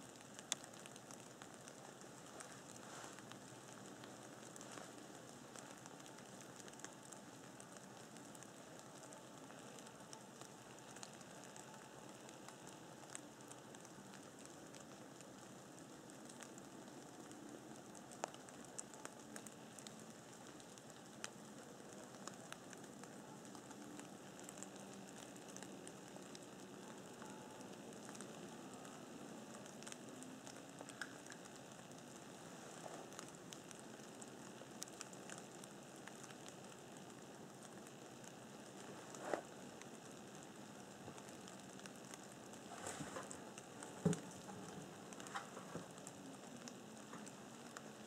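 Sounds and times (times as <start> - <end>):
faint steady hiss: 0.0 - 48.0
soft ticks: 0.1 - 17.4, 29.6 - 38.1, 44.1 - 47.9.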